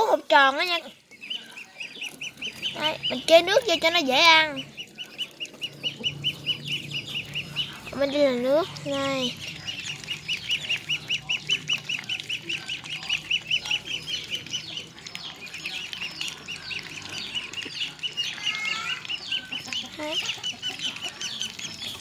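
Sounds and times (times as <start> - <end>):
ducklings peeping: 0.0 - 22.0.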